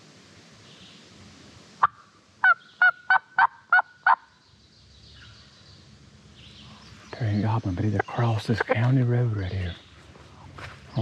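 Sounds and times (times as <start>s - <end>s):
turkey call yelps: 1.8s - 4.3s.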